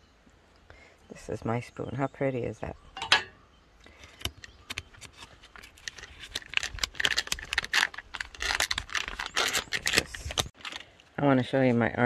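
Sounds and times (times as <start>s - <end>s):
plastic food pouch crinkling: 3.9s - 11.0s.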